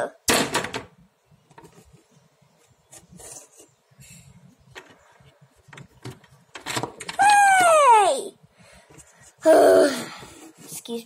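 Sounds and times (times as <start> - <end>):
plastic toys scraping on wood: 1.6 - 3.8.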